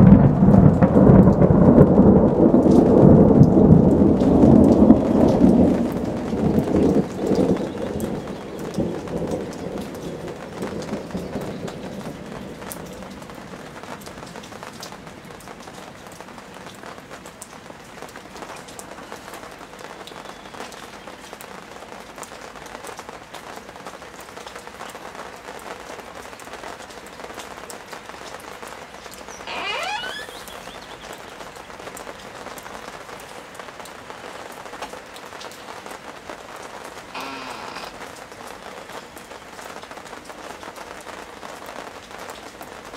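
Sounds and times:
thunder rumbling: 0:00.0 - 0:12.6
steady rain: 0:00.0 - 0:42.9.

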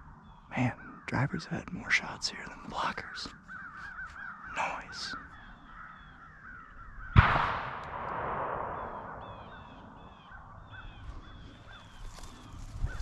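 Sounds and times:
crows cawing: 0:02.8 - 0:13.0
sudden loud bang: 0:07.2 - 0:09.7.

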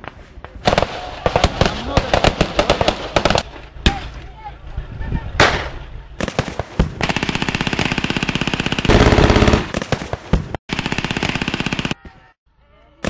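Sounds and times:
machine gun firing bursts: 0:00.6 - 0:03.5, 0:06.2 - 0:12.0.

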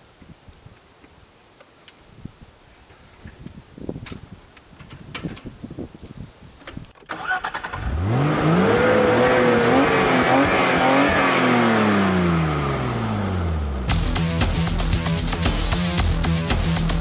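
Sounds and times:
lawn mower engine starting and revving: 0:06.9 - 0:13.9.

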